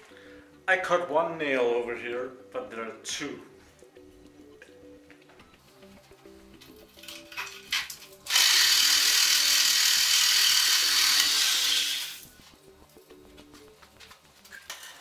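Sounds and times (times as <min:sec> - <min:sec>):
power tool cutting nail: 0:07.7 - 0:12.3.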